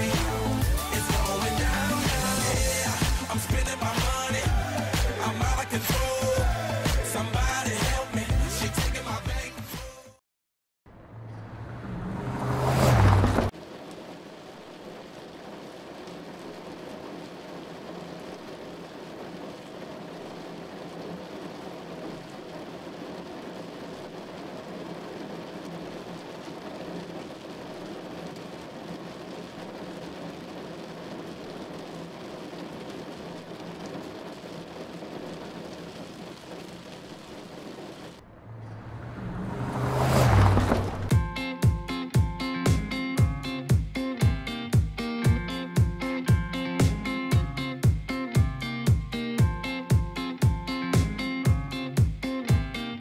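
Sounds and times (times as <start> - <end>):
rain on car windscreen: 0.0 - 8.2, 12.0 - 44.1
whoosh: 11.0 - 13.5, 38.2 - 41.2
tyre spray on wet road: 11.0 - 41.3.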